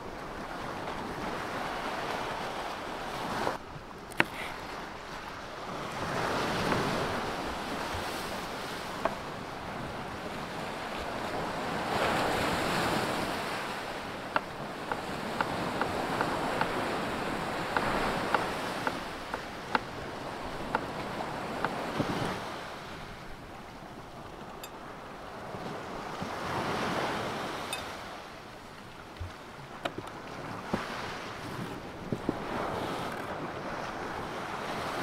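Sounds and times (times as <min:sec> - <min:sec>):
sea surf washing on shore: 0:00.0 - 0:35.0
wind on microphone: 0:00.0 - 0:35.0
knife cutting on wooden board: 0:04.1 - 0:04.6.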